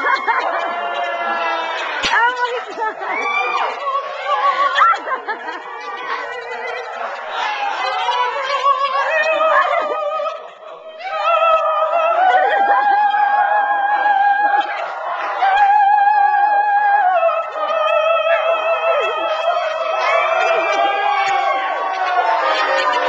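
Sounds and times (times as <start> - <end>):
puppy howling: 0.0 - 10.3, 16.8 - 23.0.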